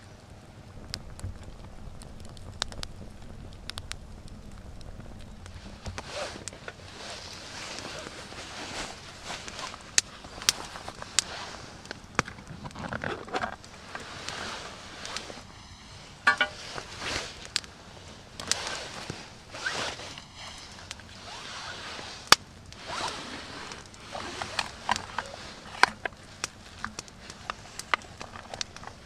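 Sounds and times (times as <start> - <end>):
clothing rustle: 5.5 - 29.0
metal tin clinks and knocks: 16.3 - 16.6.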